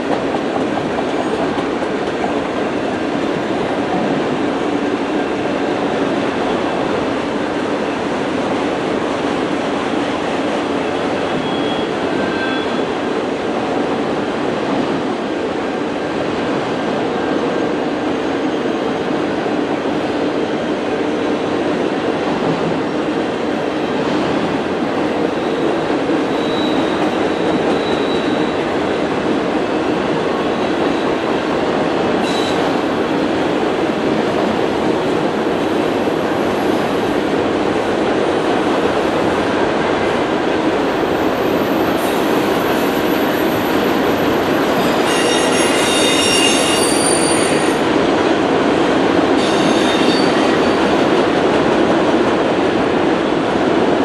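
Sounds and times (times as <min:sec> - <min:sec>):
steel wheels rolling on rail: 0:00.0 - 0:54.0
high wheel squeals: 0:11.3 - 0:12.8, 0:26.2 - 0:28.6, 0:44.8 - 0:47.8, 0:49.4 - 0:50.5.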